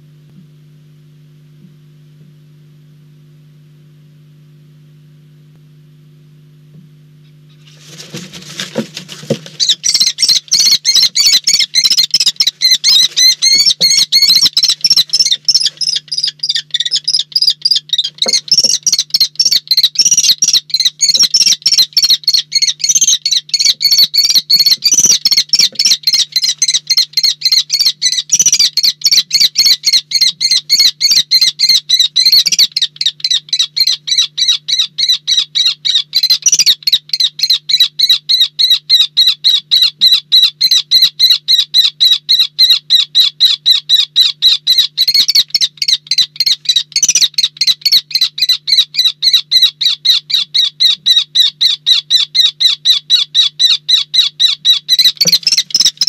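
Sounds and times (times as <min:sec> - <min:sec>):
faint low hum: 0:00.0 - 0:56.0
dull knocks of scuffle: 0:07.7 - 0:09.6
kestrel shrill calls: 0:09.5 - 0:56.0.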